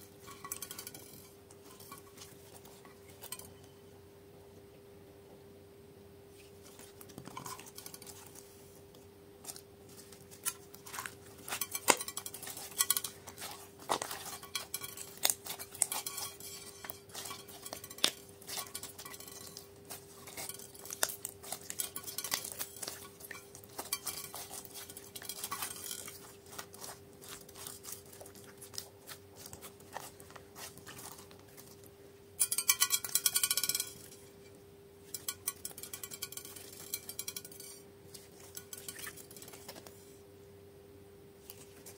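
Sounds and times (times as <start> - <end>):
slime clicking and crackling: 10.2 - 31.9.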